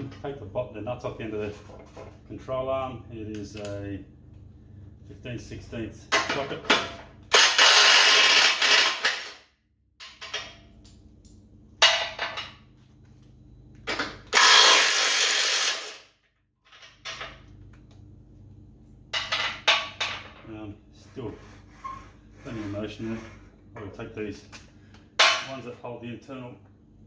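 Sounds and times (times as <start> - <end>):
impact wrench bursts: 7.3 - 9.4, 14.3 - 16.1.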